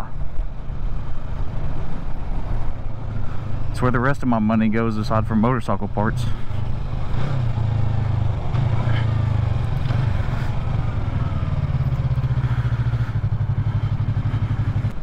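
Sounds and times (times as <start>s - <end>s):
motorcycle engine running: 4.8s - 15.0s.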